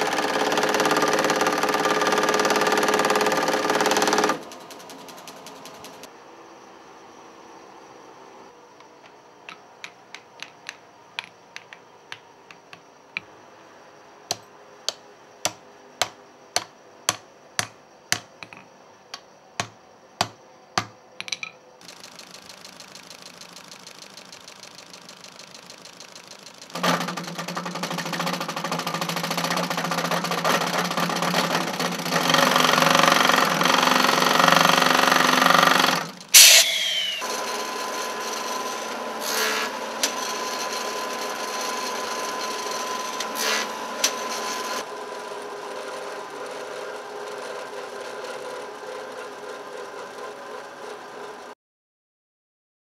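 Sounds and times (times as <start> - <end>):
powered workshop machine running: 0.0 - 6.1, 21.8 - 51.6
sharp knocks on wood: 14.3 - 18.6, 19.6 - 21.4.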